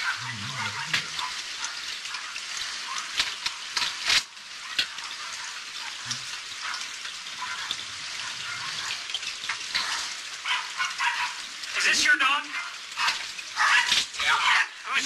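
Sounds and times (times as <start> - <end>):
crackling hiss: 0.0 - 5.1.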